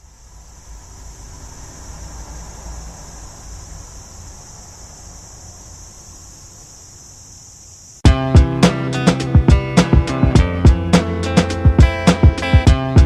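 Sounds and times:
high-pitched hiss: 0.0 - 13.0
plucked guitar music: 8.0 - 13.0.

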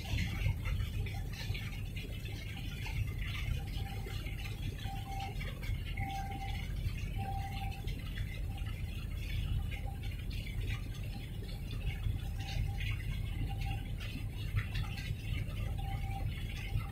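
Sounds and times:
water splashing and rattling: 0.0 - 16.9
faint beeping tone: 4.8 - 7.8, 15.6 - 16.9.

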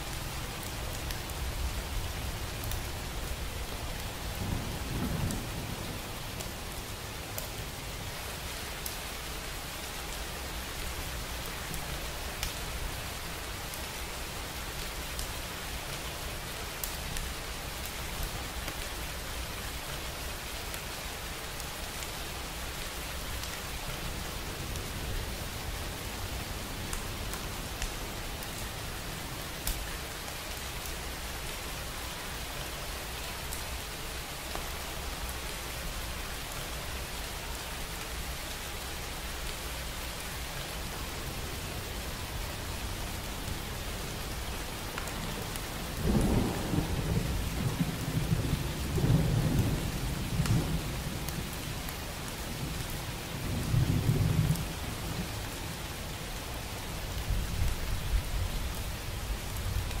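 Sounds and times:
steady rain: 0.0 - 60.0
low rolling thunder: 4.3 - 6.2, 45.9 - 51.6.

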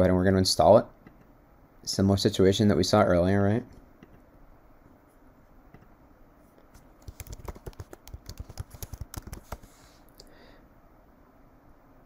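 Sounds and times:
computer keyboard typing: 7.0 - 9.8.

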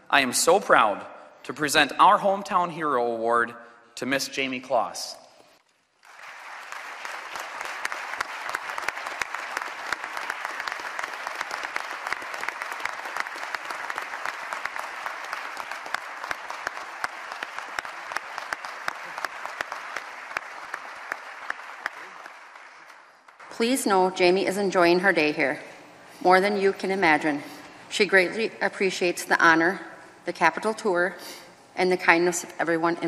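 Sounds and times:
crowd applauding: 5.9 - 23.5.

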